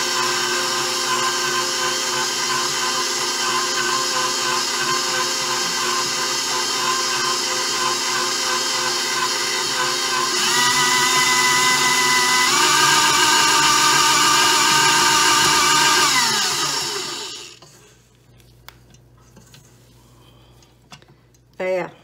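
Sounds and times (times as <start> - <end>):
stand mixer motor whine: 0.0 - 17.6.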